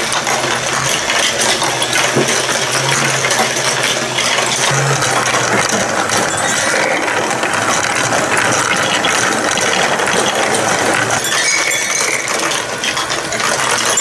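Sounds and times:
gear motor and balls clattering: 0.0 - 14.0.

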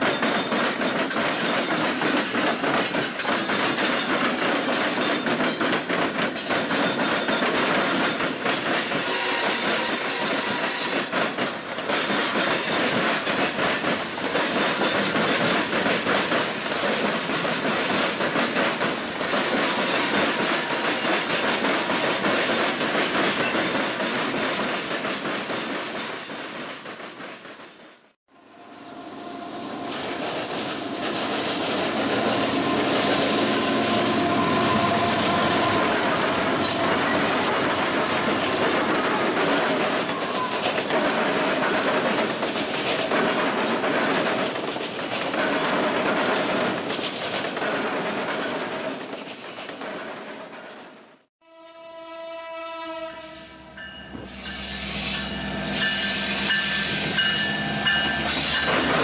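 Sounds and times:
freight train wheels rumbling: 0.0 - 28.2, 28.9 - 51.3, 52.9 - 59.0
high wheel squeals: 53.9 - 58.9.

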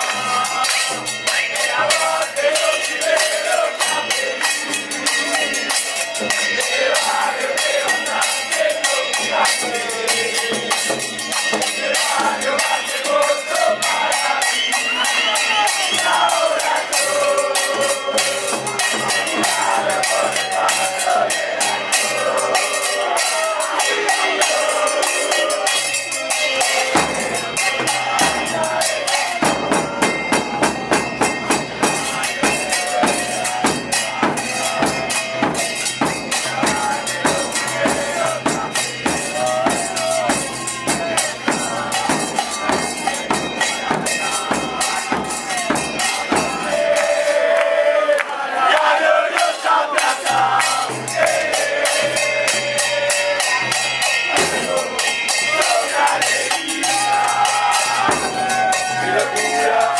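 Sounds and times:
fast drum beat: 0.0 - 47.5, 49.4 - 59.9
crowd singing a chant: 0.0 - 59.9.

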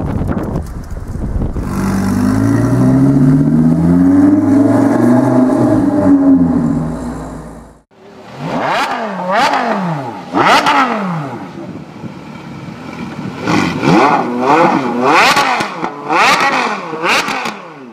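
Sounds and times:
car engine driving off: 0.7 - 11.4
engine revving in blips: 8.4 - 11.4, 13.4 - 17.9.

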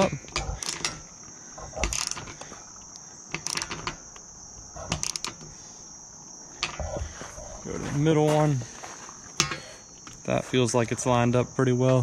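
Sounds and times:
crickets droning: 0.0 - 12.0
ratchet wrench clicking: 3.3 - 4.0, 4.9 - 5.4.

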